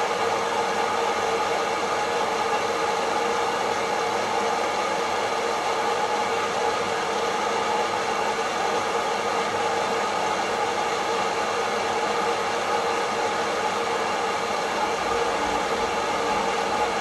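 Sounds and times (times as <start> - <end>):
coffee roaster fan whirring: 0.0 - 17.0
faint even hum: 14.6 - 17.0.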